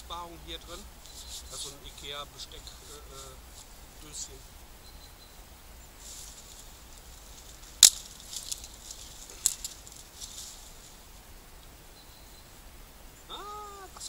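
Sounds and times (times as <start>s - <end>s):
wood cracking: 7.3s - 10.8s.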